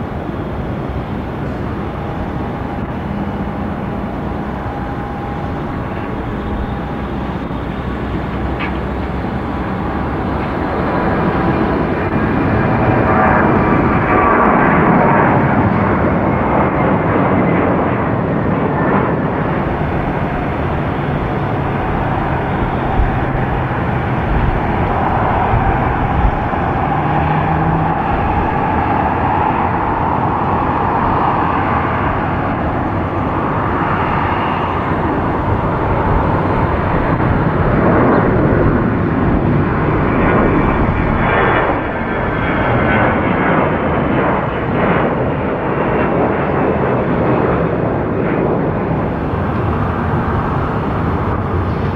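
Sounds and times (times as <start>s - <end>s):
jet engine whine rising: 0.0s - 51.9s
jet engines roaring: 0.0s - 51.9s.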